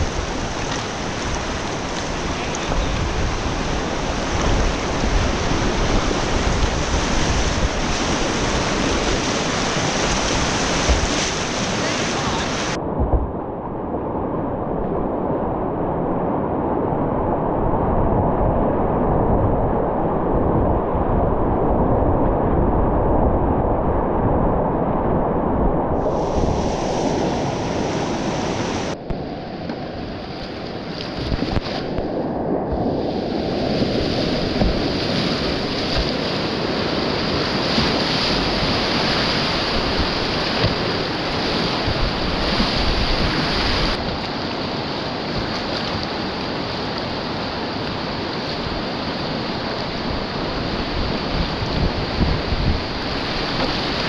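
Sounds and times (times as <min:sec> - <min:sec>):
rushing whitewater: 0:00.0 - 0:13.1, 0:26.0 - 0:54.0
wind noise on microphone: 0:00.0 - 0:54.0.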